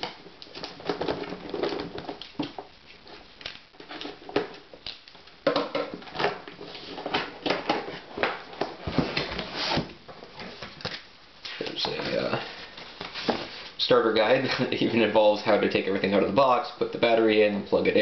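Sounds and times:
cardboard rustling and scraping: 6.0 - 10.8, 11.8 - 13.8.

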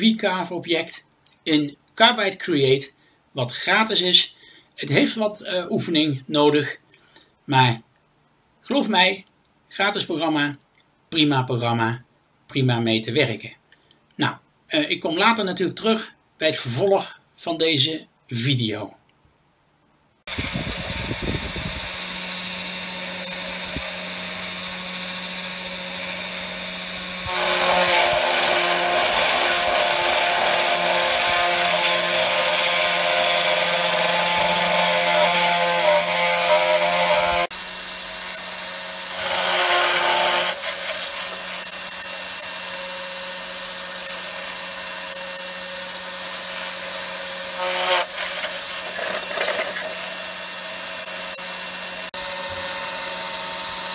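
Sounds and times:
cnc router spindle carving wood: 20.3 - 53.9.

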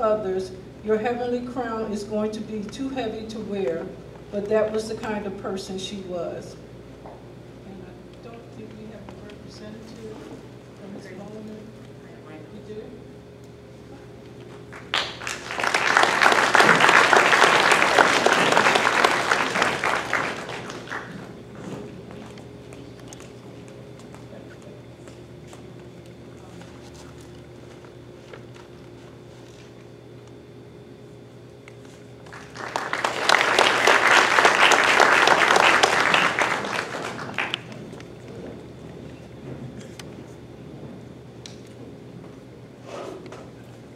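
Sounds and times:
audience applauding: 14.7 - 21.3, 32.2 - 38.0.

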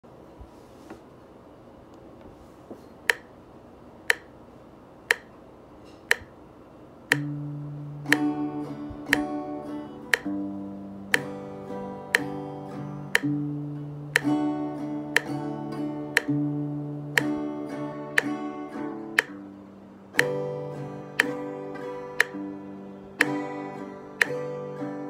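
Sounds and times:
sharp clicks: 3.1 - 3.3, 4.1 - 4.3, 5.1 - 5.4, 6.1 - 6.3, 7.1 - 7.4, 9.0 - 9.3, 10.1 - 10.4, 13.1 - 13.3, 16.2 - 16.4, 20.2 - 20.4, 24.2 - 24.4
acoustic guitar chords: 7.1 - 25.0.

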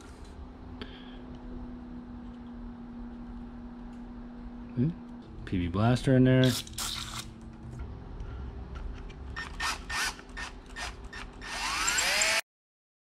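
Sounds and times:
cordless drill drilling metal: 9.4 - 12.4.

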